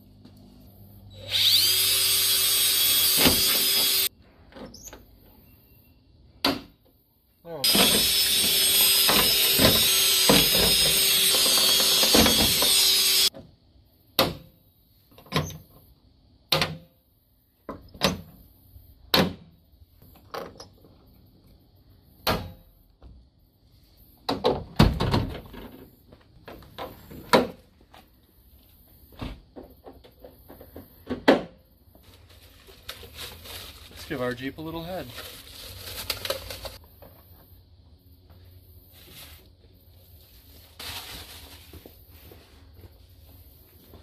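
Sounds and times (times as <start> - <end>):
power drill drilling: 1.2 - 4.1, 7.6 - 13.3.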